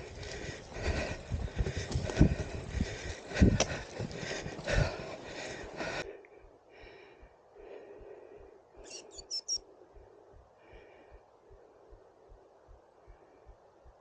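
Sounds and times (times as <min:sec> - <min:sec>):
high bird chirps: 0:08.8 - 0:09.6
small birds calling: 0:08.8 - 0:09.6.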